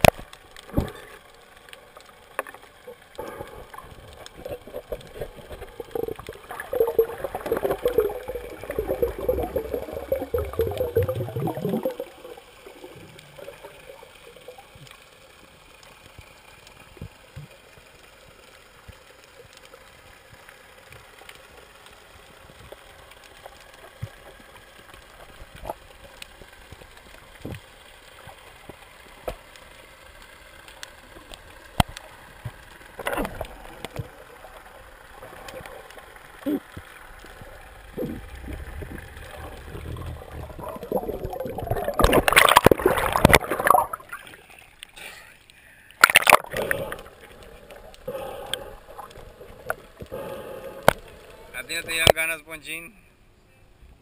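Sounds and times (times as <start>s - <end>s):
bubbling rushing water underwater: 0.0s - 45.0s, 46.0s - 52.2s
low underwater hiss: 0.0s - 53.9s
faint clicks: 13.1s - 52.2s.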